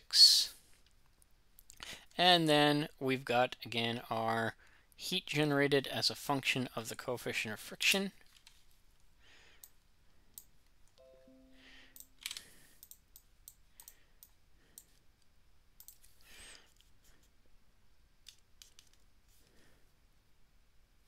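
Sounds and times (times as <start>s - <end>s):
tone stepping down in pitch: 11.0s - 11.9s
computer mouse clicks: 12.0s - 16.2s, 18.2s - 19.0s.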